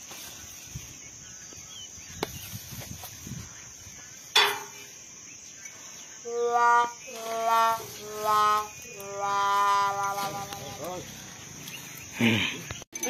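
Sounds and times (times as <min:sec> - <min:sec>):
high-pitched insect drone: 0:03.1 - 0:13.0.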